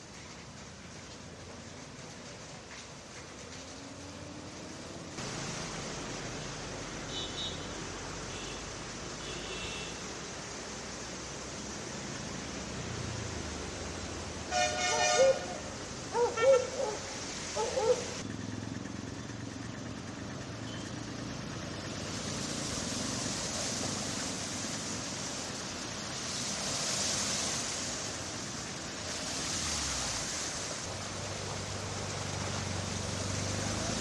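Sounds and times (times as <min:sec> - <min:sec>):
tyres splashing through water: 0:00.0 - 0:18.3, 0:20.6 - 0:34.0
car engine hum: 0:10.4 - 0:26.1, 0:28.2 - 0:34.0.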